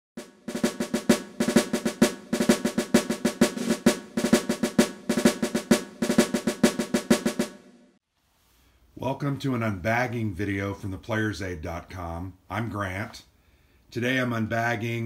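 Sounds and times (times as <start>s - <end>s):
fast rhythmic snare drumming: 0.2s - 7.8s.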